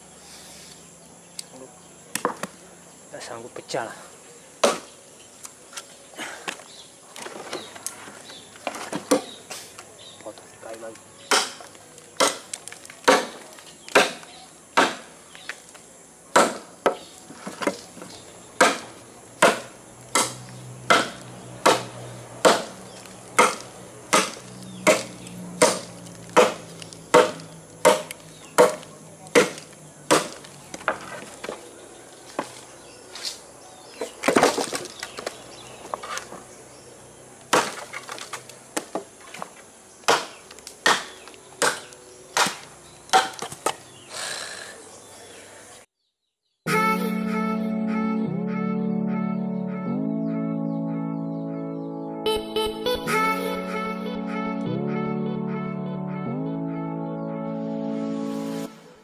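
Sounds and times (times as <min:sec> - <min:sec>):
machete chopping wood: 0:02.1 - 0:02.6, 0:04.6 - 0:04.9, 0:11.2 - 0:15.2, 0:16.3 - 0:17.9, 0:18.6 - 0:22.8, 0:23.4 - 0:31.6, 0:37.5 - 0:43.8
wood crunch: 0:02.1 - 0:02.6, 0:04.6 - 0:36.6, 0:37.4 - 0:44.1.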